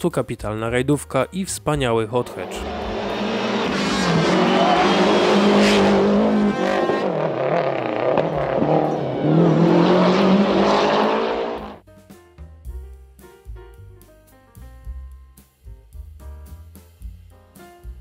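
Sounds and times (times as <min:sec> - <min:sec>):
rally car engine revving: 0:02.2 - 0:11.8.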